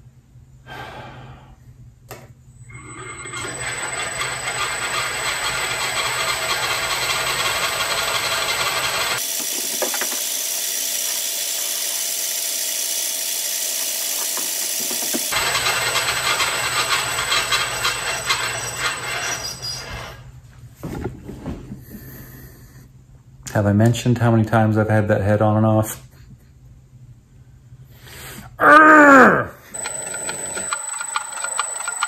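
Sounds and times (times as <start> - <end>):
milling machine spindle running: 2.7 - 20.0, 29.8 - 32.0.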